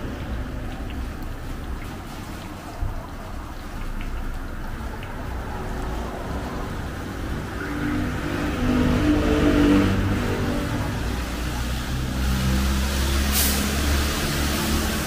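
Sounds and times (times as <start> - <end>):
traffic rumble: 0.0 - 15.0
vehicle engine: 4.8 - 15.0
oil sizzling in a wok: 10.4 - 15.0.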